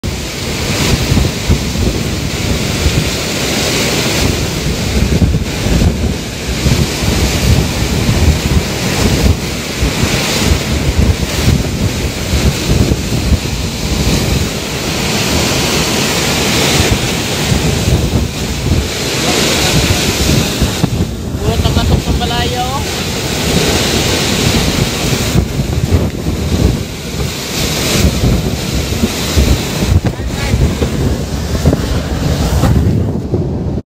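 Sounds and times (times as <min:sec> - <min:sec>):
driving rain: 0:00.0 - 0:33.8
strong winds: 0:00.0 - 0:33.8
wind buffeting microphone: 0:00.0 - 0:33.8.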